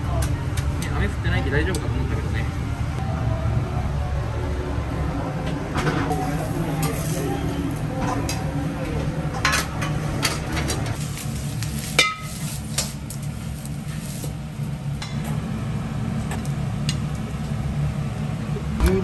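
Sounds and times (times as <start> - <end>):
steady low hum: 0.0 - 19.0
bowls and utensils clinking: 11.9 - 12.9.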